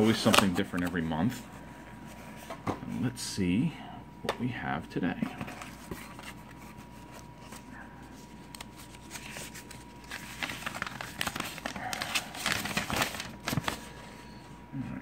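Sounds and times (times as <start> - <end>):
paper rustling and crinkling: 0.0 - 1.3, 5.2 - 14.4.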